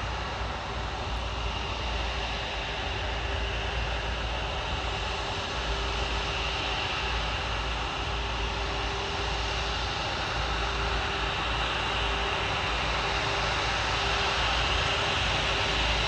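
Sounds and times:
jet engines droning: 0.0s - 16.0s.

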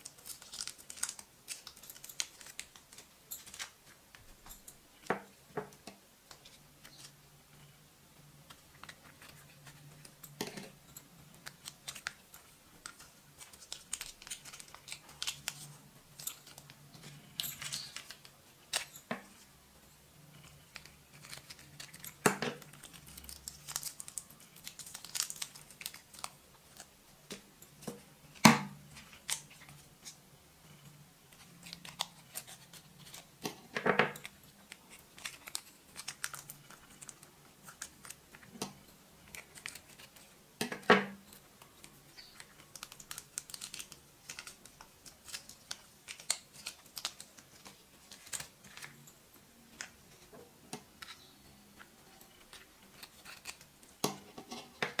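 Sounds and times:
plastic sachet crinkling: 0.0s - 4.0s, 11.3s - 19.5s, 20.4s - 27.4s, 34.2s - 38.6s, 39.2s - 40.4s, 41.6s - 49.0s, 51.0s - 54.0s.

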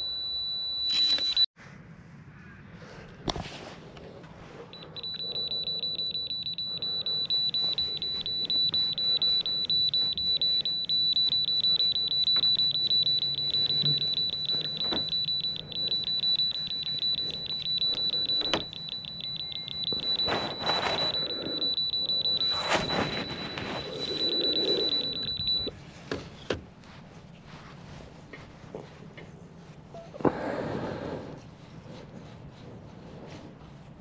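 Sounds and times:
rapid electronic beeping: 4.7s - 25.7s.

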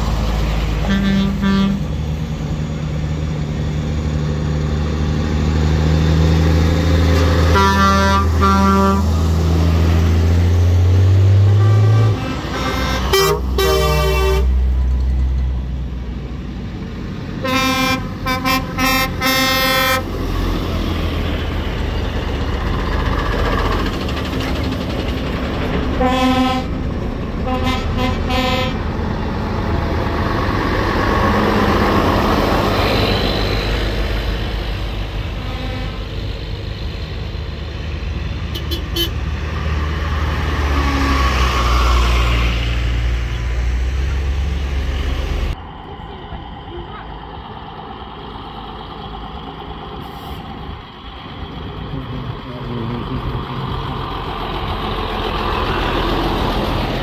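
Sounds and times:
heavy engine rising in pitch: 0.0s - 57.0s
vehicles driving past: 0.0s - 57.0s
car horns tooting: 7.5s - 9.1s, 11.4s - 14.6s, 17.4s - 20.0s, 26.0s - 26.7s, 27.5s - 28.8s, 35.4s - 36.1s, 38.5s - 39.2s.

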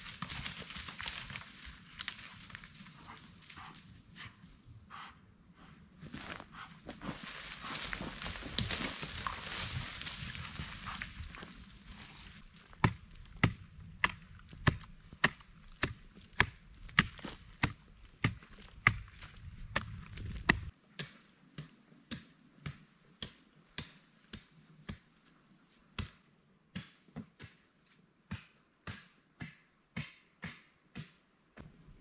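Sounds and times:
hand tool chopping: 12.7s - 24.0s.

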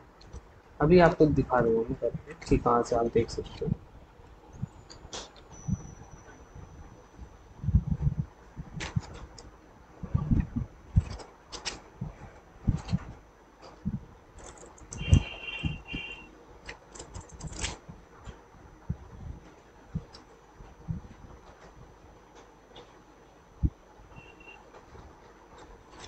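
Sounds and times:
irregular clicks: 14.4s - 15.4s.

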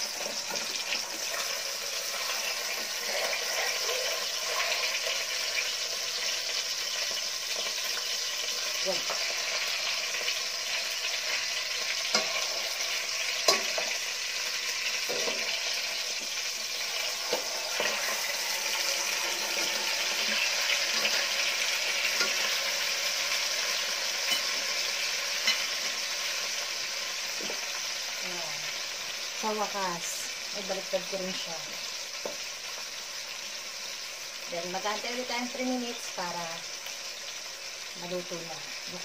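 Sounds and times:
chicken sizzling in hot oil: 0.0s - 39.0s
utensils knocking against pot: 13.4s - 14.0s, 15.1s - 15.5s.

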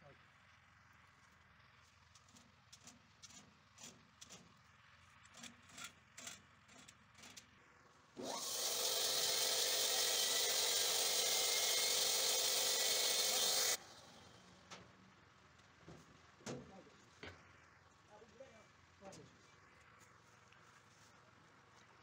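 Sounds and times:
band saw motor whine and hiss: 8.2s - 14.4s.

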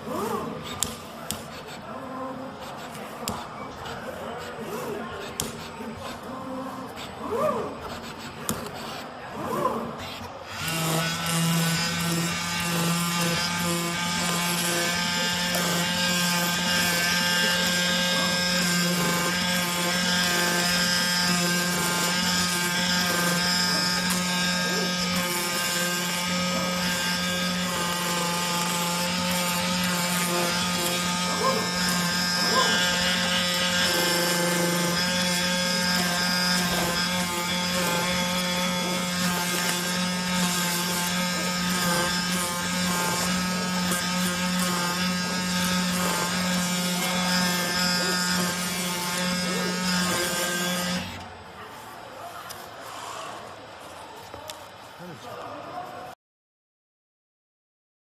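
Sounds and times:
cutting machine electric hum: 9.7s - 51.5s
vibrating knife buzz: 10.5s - 51.2s.

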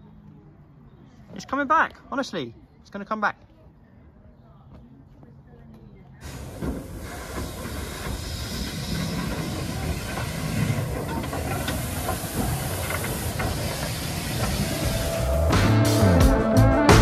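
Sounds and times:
wheels clicking on rails: 6.2s - 15.5s
steam hissing: 6.2s - 15.6s.

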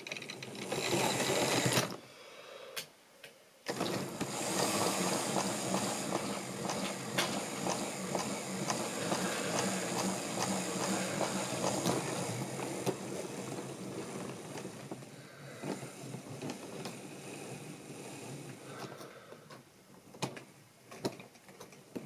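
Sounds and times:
wheels clicking over rail joints: 0.0s - 2.0s, 3.7s - 17.5s
model train motor whirring: 0.3s - 2.0s, 3.7s - 19.1s.

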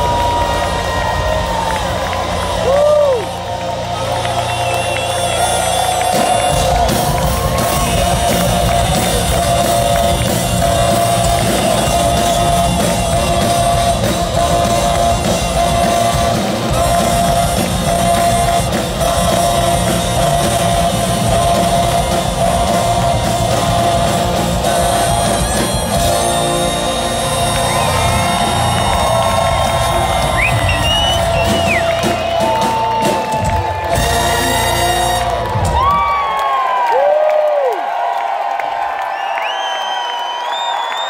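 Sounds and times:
live brass band funk: 4.1s - 36.0s.

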